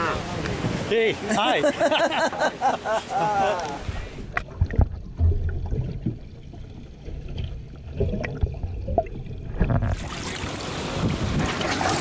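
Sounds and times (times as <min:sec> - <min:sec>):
sea noise: 0:00.0 - 0:12.0
wind: 0:00.0 - 0:12.0
underwater water movement: 0:03.5 - 0:12.0.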